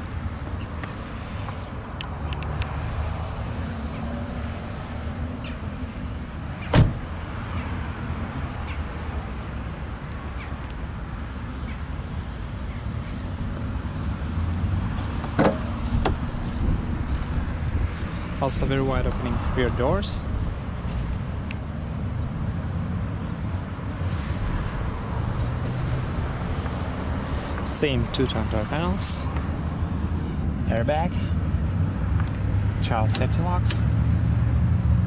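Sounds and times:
car door shutting: 6.6 - 7.1, 15.2 - 16.3
car door latch click: 6.7 - 7.0, 15.4 - 16.2
wind on microphone: 15.6 - 18.4.

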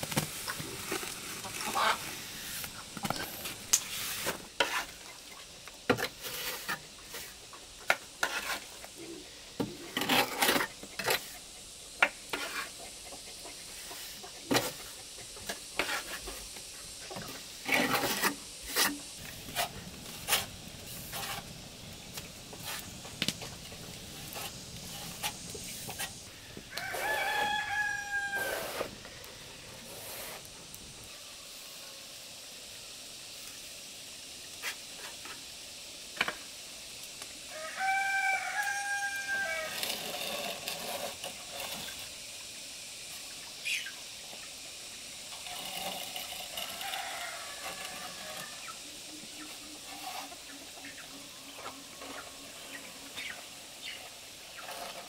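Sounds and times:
rooster crowing: 26.7 - 28.9, 37.5 - 40.1, 46.6 - 48.8.

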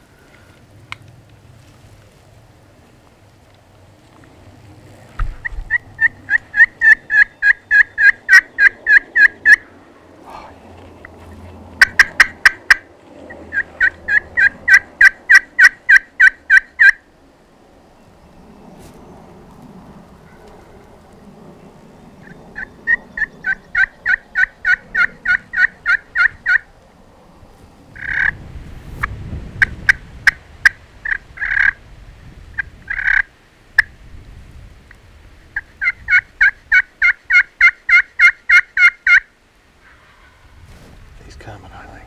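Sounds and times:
turkey yelping: 5.4 - 9.7, 11.8 - 12.8, 13.4 - 17.0, 22.2 - 26.7, 28.0 - 28.4, 32.6 - 33.3, 35.6 - 40.4.

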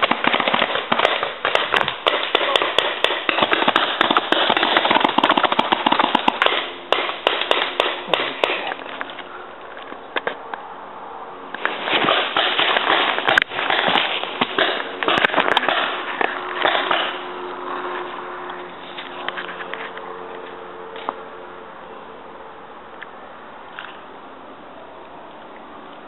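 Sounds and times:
paintball markers firing: 0.0 - 8.9, 12.0 - 17.2
rustling of brush and leaves: 11.4 - 21.0.

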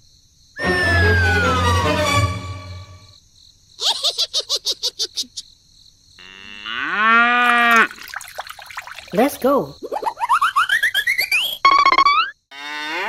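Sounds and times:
cow mooing: 6.2 - 7.9, 12.5 - 13.0.

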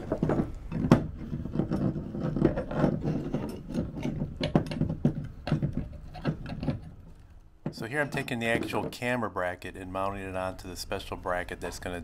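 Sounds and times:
metal parts clicking and rattling: 0.1 - 7.4.

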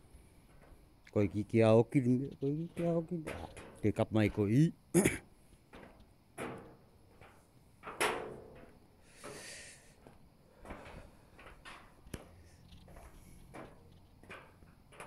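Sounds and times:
knocks on metal walkway: 5.8 - 8.8
short hiss: 9.0 - 10.0.

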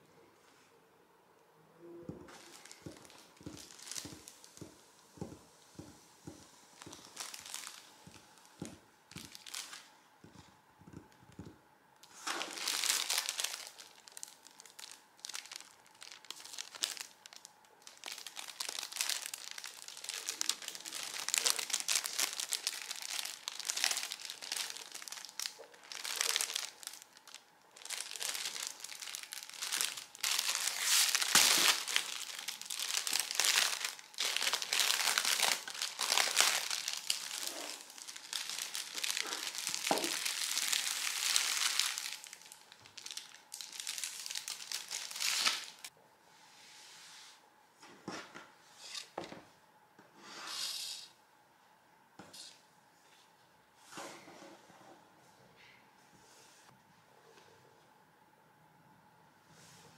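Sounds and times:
plastic bag crinkling: 2.2 - 10.4, 12.0 - 45.9.

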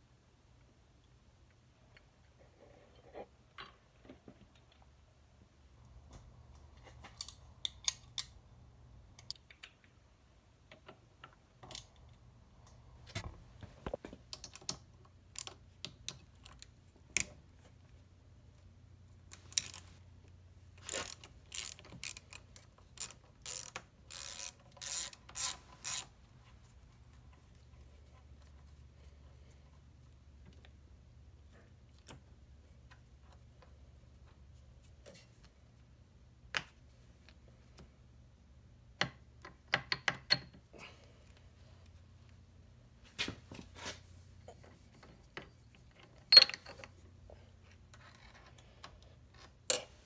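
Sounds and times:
socket ratchet clicking: 20.9 - 26.1.

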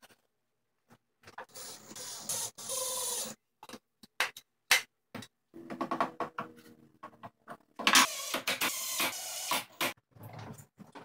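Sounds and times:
cordless drill driving screws: 8.0 - 9.6.

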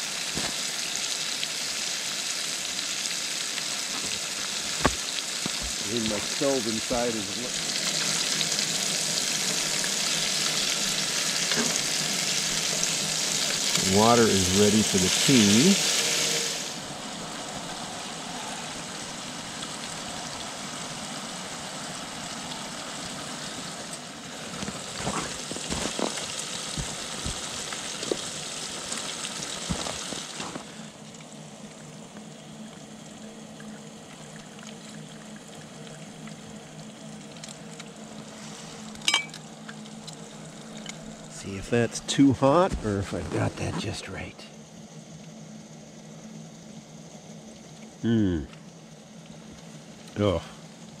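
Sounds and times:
hot water pouring into mug: 0.0 - 31.3
steady hiss: 0.0 - 34.4, 35.0 - 51.0.

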